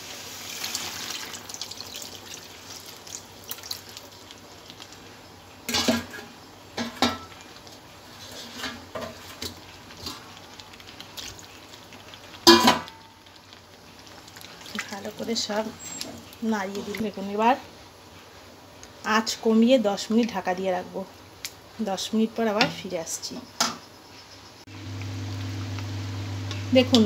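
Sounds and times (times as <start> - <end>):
water hissing in hot pan: 0.0 - 19.4.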